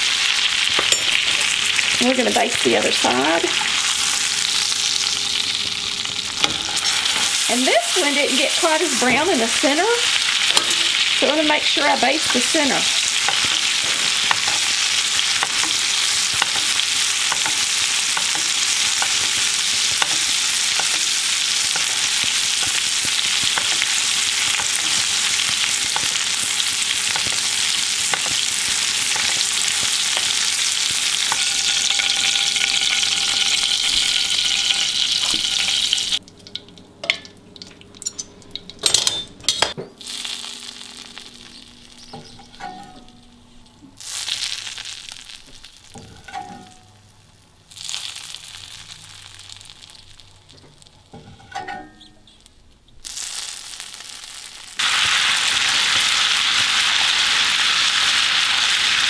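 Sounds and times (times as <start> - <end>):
butter sizzling in a skillet: 0.0 - 36.2, 40.0 - 42.6, 44.0 - 51.2, 53.0 - 59.0.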